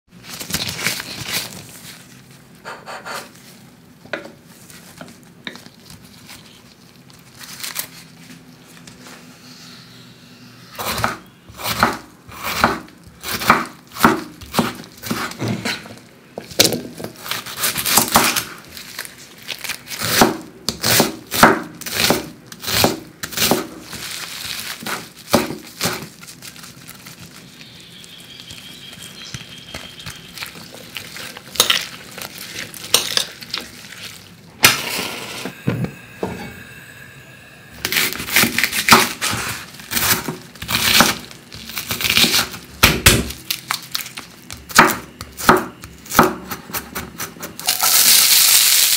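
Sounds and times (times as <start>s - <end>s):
knife chopping on wooden board: 10.8s - 15.8s, 20.0s - 23.8s, 44.6s - 47.4s.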